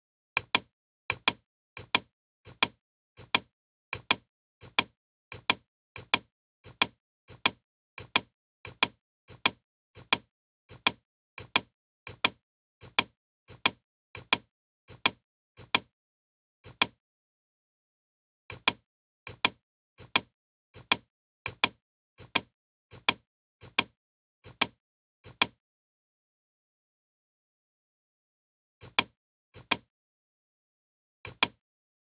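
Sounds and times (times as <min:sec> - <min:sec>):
computer mouse button clicking: 0:00.4 - 0:15.9, 0:28.8 - 0:29.9, 0:31.3 - 0:31.6.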